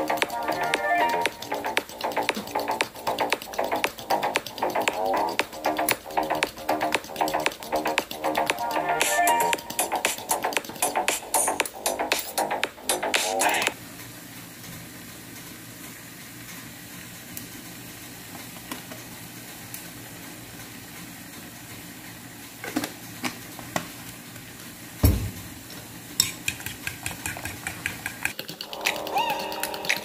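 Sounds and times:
scattered clicks: 0:00.0 - 0:08.6
loud thump: 0:25.0 - 0:25.4
fork stirring in ceramic bowl: 0:26.2 - 0:30.0.

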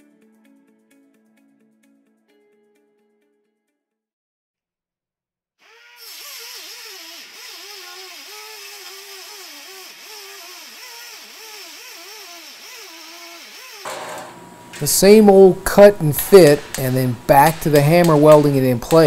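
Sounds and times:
air saw cutting steel: 0:05.6 - 0:19.0.

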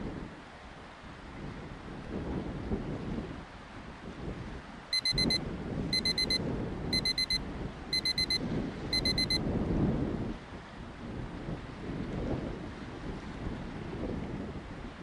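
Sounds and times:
electronic alarm beeping: 0:04.9 - 0:09.4.

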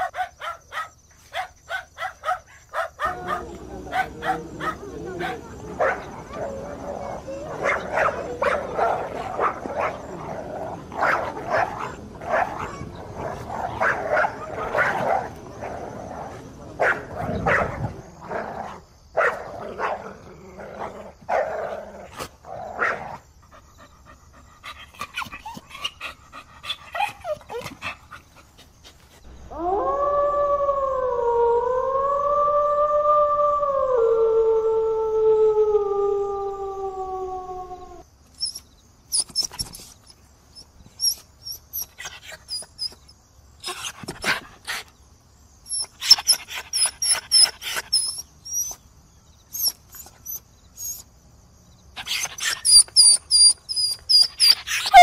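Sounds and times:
dogs yipping and barking: 0:00.0 - 0:17.9, 0:22.2 - 0:28.6, 0:38.3 - 0:44.9, 0:45.7 - 0:48.8, 0:49.5 - 0:51.1, 0:52.0 - 0:55.0
dog howling: 0:02.8 - 0:10.2, 0:29.5 - 0:38.0.

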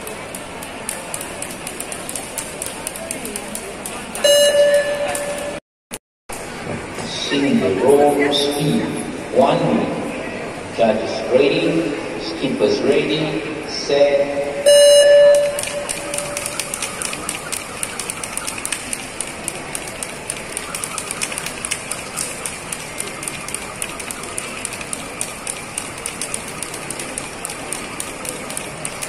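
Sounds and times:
electronic start beep: 0:04.2 - 0:05.6, 0:14.7 - 0:16.8
skipping ropes slapping floor: 0:15.5 - 0:29.0.

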